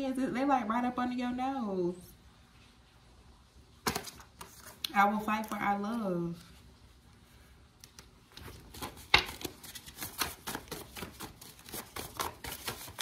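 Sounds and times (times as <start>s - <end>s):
cards being shuffled: 3.8s - 6.6s, 7.8s - 13.0s.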